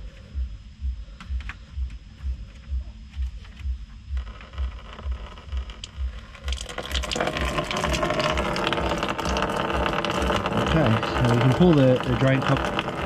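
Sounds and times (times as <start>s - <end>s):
low regular pulsing: 0.0s - 13.0s
drain cock clicks: 4.6s - 13.0s
coolant splashing into tray: 6.4s - 13.0s.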